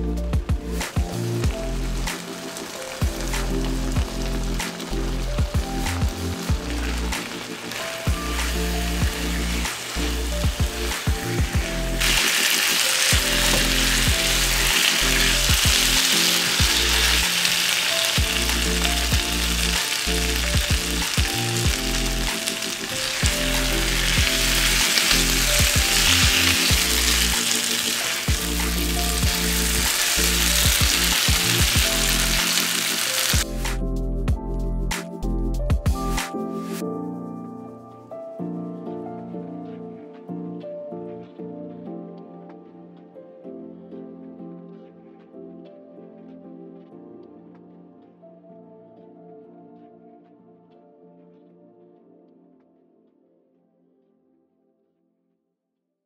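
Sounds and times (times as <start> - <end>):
chicken sizzling in a frying pan: 1.2 - 33.6
spatula turning food: 7.7 - 20.4.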